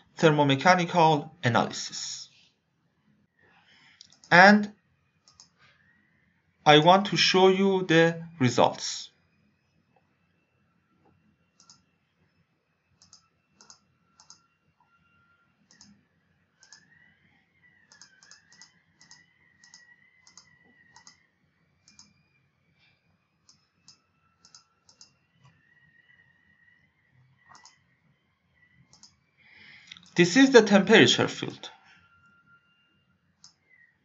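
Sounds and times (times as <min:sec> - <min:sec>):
computer mouse clicks: 0:03.9 - 0:04.4, 0:05.2 - 0:05.6, 0:11.6 - 0:11.9, 0:13.0 - 0:14.5, 0:15.7 - 0:16.0, 0:16.6 - 0:17.0, 0:17.9 - 0:21.2, 0:21.8 - 0:22.2, 0:23.5 - 0:25.6, 0:27.5 - 0:27.8, 0:28.9 - 0:29.2, 0:29.9 - 0:30.2, 0:33.4 - 0:33.6.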